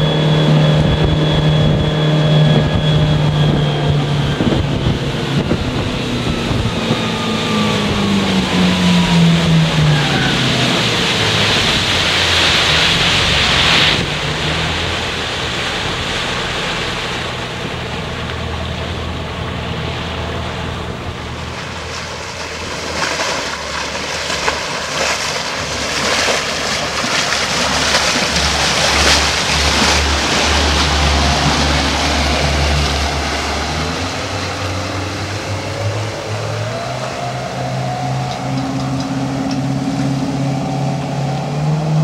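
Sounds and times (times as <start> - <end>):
wind buffeting microphone: 0.0 - 23.0
motorboat engine: 0.0 - 42.0
rushing water: 0.0 - 42.0.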